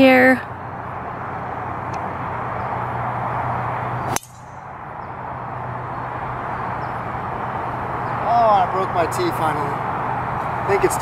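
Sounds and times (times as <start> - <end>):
outdoor background hiss: 0.0 - 11.0
golf club striking ball: 4.1 - 4.7.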